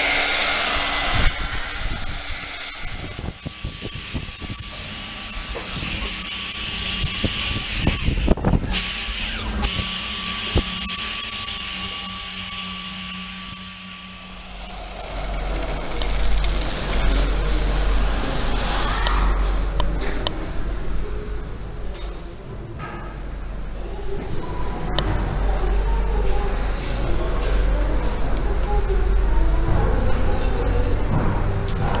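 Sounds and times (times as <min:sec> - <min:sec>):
electric polisher motor whine: 0:00.0 - 0:16.2
low rumble: 0:00.0 - 0:21.8.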